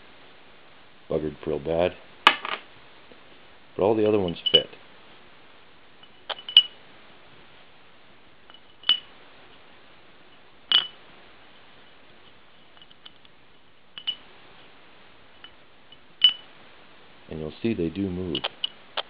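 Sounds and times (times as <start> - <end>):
rollers clinking against metal housing: 4.0 - 4.8, 6.0 - 6.8, 8.5 - 9.1, 10.7 - 11.0, 14.0 - 14.2, 15.4 - 16.5.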